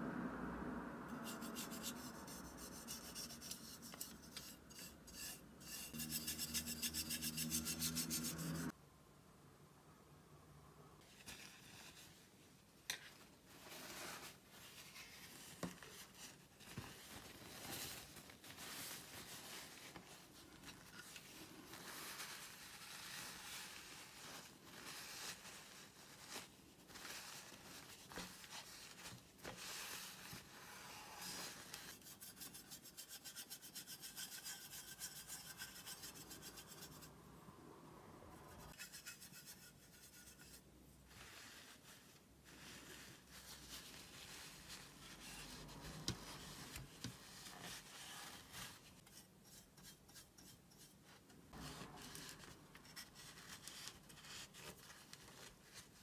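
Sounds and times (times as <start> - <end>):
paper tissue rubbing tin lid: 13.5 - 37.1.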